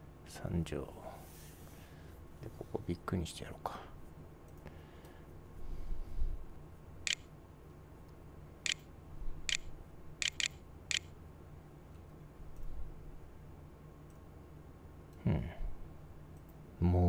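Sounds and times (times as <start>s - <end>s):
faint steady hum: 0.0s - 17.0s
computer mouse clicking: 7.1s - 7.3s, 9.5s - 11.1s.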